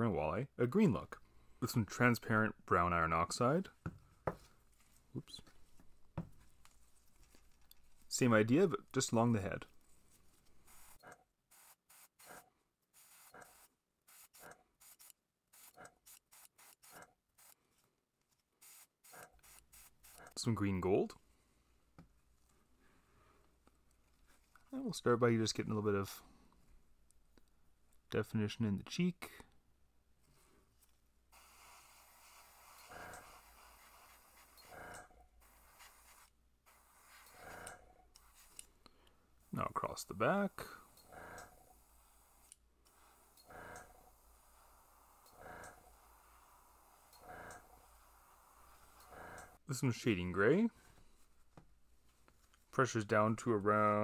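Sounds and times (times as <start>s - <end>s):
airbrush spraying hisses: 31.4s - 34.7s, 35.4s - 37.5s, 41.7s - 49.2s.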